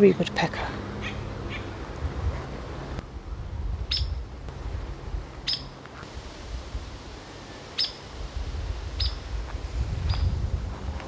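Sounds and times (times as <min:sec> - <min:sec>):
woodpecker peek calls: 0:01.0 - 0:01.7, 0:03.9 - 0:04.2, 0:05.4 - 0:05.8, 0:07.8 - 0:08.0, 0:09.0 - 0:09.2.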